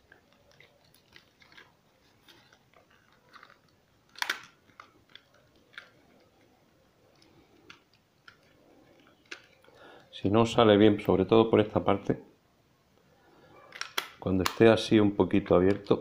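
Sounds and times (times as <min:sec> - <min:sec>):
plastic clicks and creaks: 0:00.0 - 0:09.8
plastic cracking: 0:00.0 - 0:10.1, 0:13.7 - 0:14.8.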